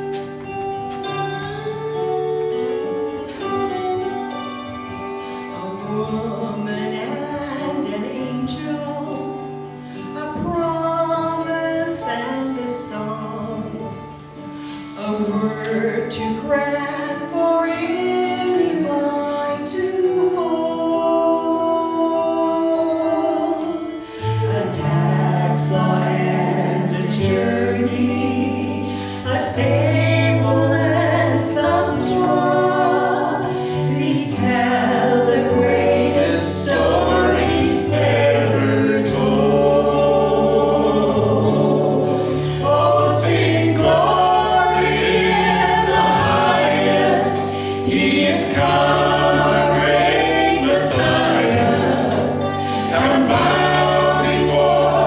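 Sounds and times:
group singing into microphones: 0:15.0 - 0:55.0.

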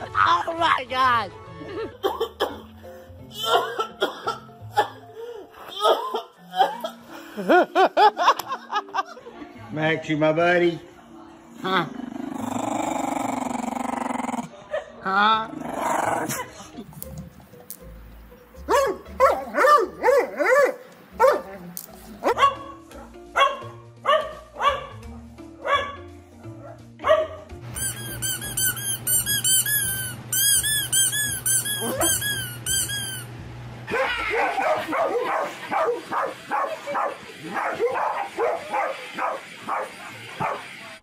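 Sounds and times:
background music: 0:00.0 - 0:41.0
dog barking: 0:18.7 - 0:21.5, 0:22.2 - 0:26.0, 0:26.6 - 0:27.4, 0:31.8 - 0:32.2, 0:33.9 - 0:41.0
squeaky rubber toy squeaking: 0:27.7 - 0:33.3.

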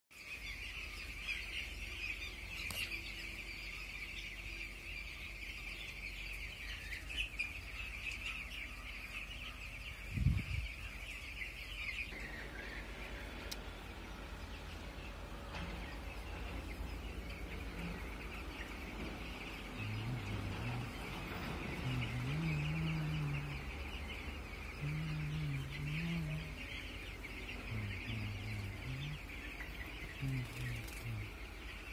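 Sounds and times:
chicks peeping: 0:00.2 - 0:31.9
deep wavering sound: 0:12.1 - 0:31.5.

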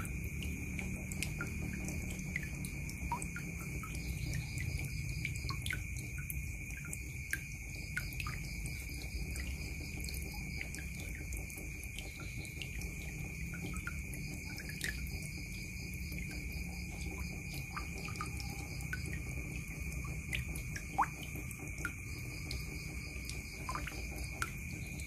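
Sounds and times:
water drops plinking: 0:00.0 - 0:15.3
water splashing into bucket: 0:00.0 - 0:25.0.

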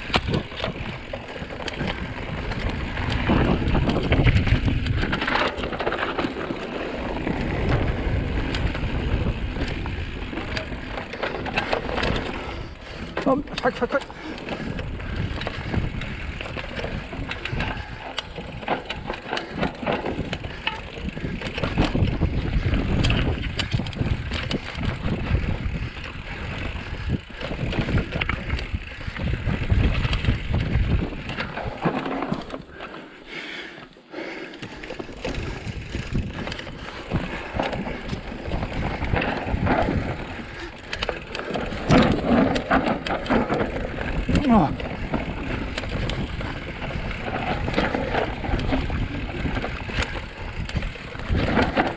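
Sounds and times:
wind on microphone: 0:00.0 - 0:05.4, 0:20.1 - 0:31.6
bike knocking and rattling: 0:00.0 - 0:51.9
bike tyres on dirt and roots: 0:00.0 - 0:51.9.

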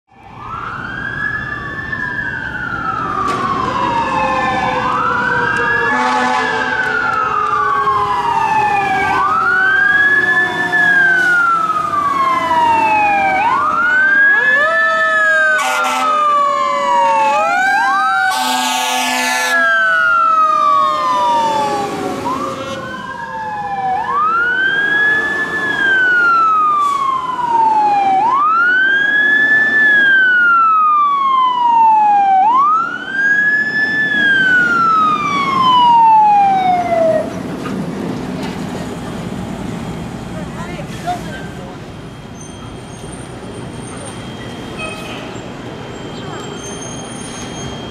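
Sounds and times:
fire truck sirens wailing: 0:00.1 - 0:47.9
air horn blasts: 0:05.9 - 0:06.9, 0:15.6 - 0:16.2, 0:18.3 - 0:19.6, 0:22.4 - 0:22.9.

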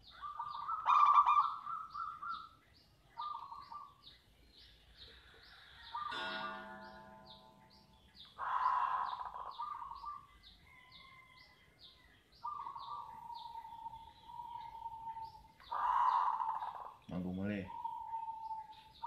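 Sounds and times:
dove cooing: 0:00.0 - 0:02.5, 0:08.4 - 0:10.3, 0:12.4 - 0:19.0
small bird chirping: 0:00.0 - 0:19.0.

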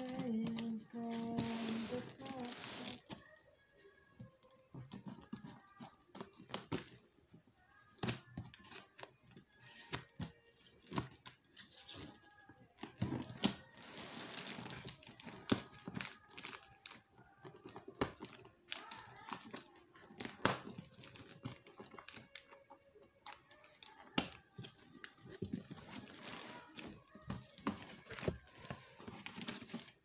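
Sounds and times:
plastic wrap crinkling: 0:00.0 - 0:03.4.

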